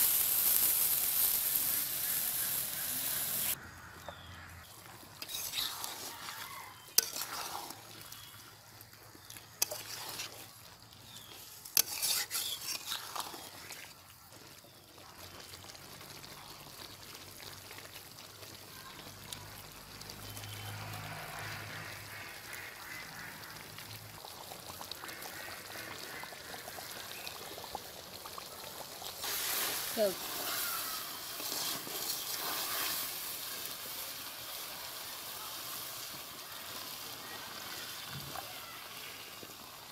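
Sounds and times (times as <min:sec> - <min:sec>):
curry sizzling gently: 0:00.0 - 0:39.9
spatula scraping metal pan: 0:05.2 - 0:08.3, 0:09.6 - 0:10.4, 0:11.3 - 0:13.8, 0:31.4 - 0:33.1.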